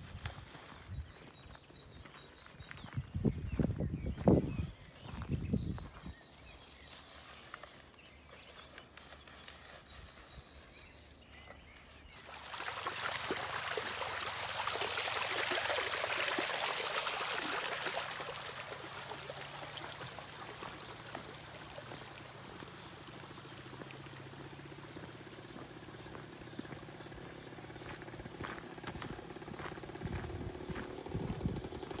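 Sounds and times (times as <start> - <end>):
water rushing along a channel: 12.1 - 26.4.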